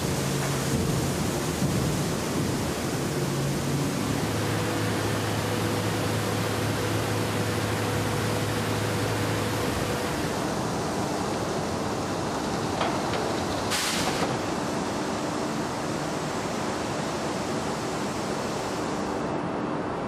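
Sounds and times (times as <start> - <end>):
rolling mill rushing: 0.0 - 20.0.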